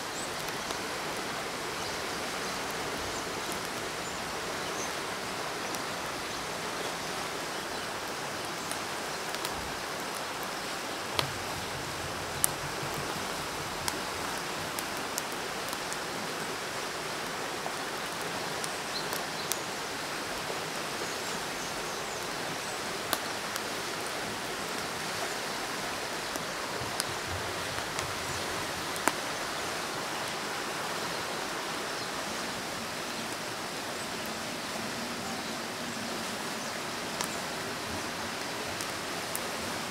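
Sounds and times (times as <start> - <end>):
stream water flowing: 0.0 - 39.9
taps on a wooden board: 11.2 - 14.0.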